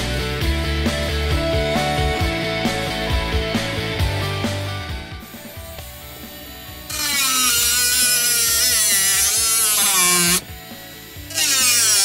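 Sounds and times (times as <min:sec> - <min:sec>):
rotary tool cutting metal track: 0:06.9 - 0:10.5, 0:11.1 - 0:12.0.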